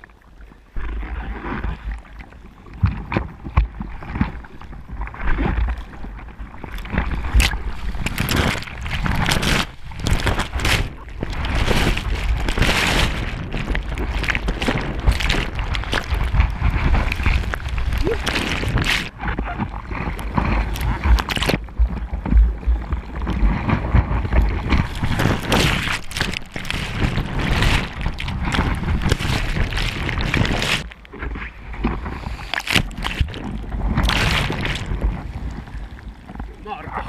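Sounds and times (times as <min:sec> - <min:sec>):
wind on microphone: 0:00.6 - 0:37.0
water splashing against board: 0:06.7 - 0:31.0, 0:31.8 - 0:35.6.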